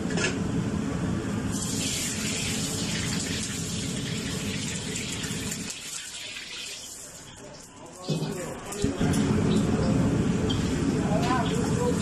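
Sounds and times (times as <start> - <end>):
gas burner rumble: 0.0 - 5.7, 8.1 - 12.0
water hissing in hot wok: 1.5 - 7.3.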